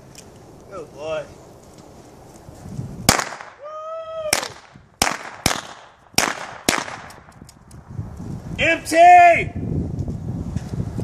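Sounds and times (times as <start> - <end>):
sharp gunshots: 3.1 - 3.6, 4.3 - 7.3.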